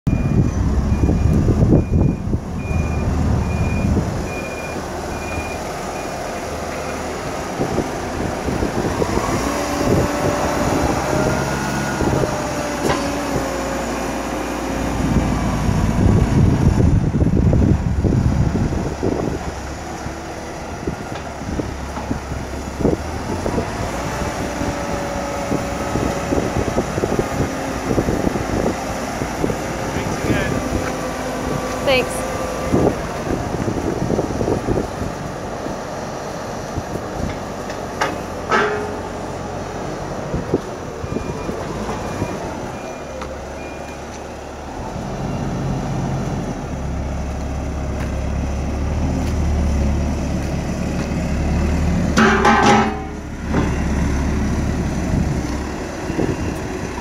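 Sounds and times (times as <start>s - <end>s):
back-up alarm beeping: 0.1s - 6.2s
diesel engine running: 0.1s - 57.0s.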